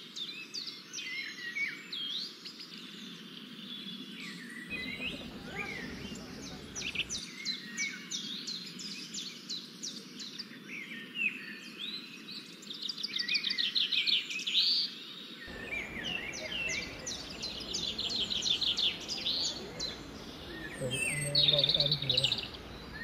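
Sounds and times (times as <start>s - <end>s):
faint background noise: 0.0s - 23.0s
birds singing: 0.1s - 23.0s.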